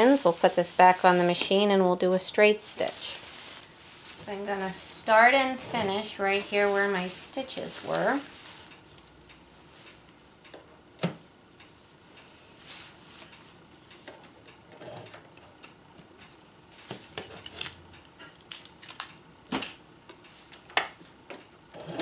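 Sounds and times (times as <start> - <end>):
nylon fabric rustling: 0.0 - 8.7.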